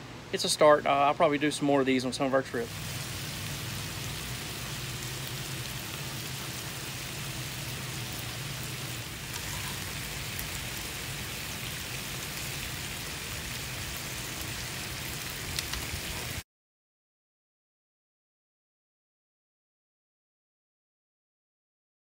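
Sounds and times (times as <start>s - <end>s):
bacon sizzling on a griddle: 2.7s - 16.4s.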